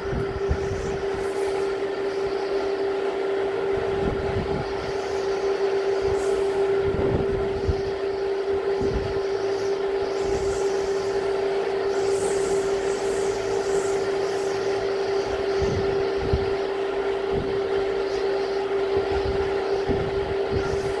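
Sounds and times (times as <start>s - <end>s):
wind buffeting microphone: 0.0s - 2.3s, 3.3s - 5.0s, 6.0s - 9.3s, 15.2s - 17.8s, 18.8s - 21.0s
steady hum: 0.0s - 21.0s.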